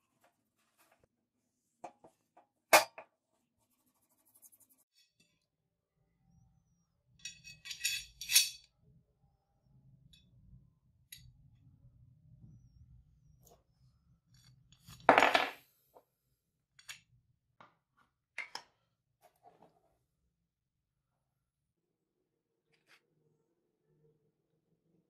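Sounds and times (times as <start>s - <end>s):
metal clinking: 7.2s - 8.7s.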